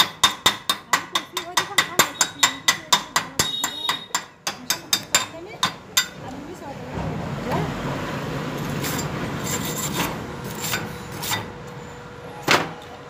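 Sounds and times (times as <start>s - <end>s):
wire brush scrubbing steel: 8.6s - 11.5s.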